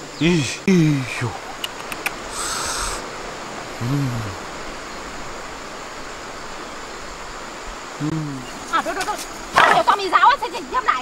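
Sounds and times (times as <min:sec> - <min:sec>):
river flowing: 0:00.0 - 0:11.0
man humming: 0:03.8 - 0:04.4, 0:08.0 - 0:08.5.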